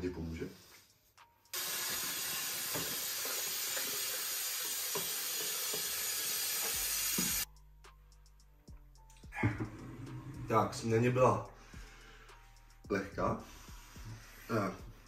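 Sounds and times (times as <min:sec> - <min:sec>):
tap water running into jug: 0:01.6 - 0:07.4.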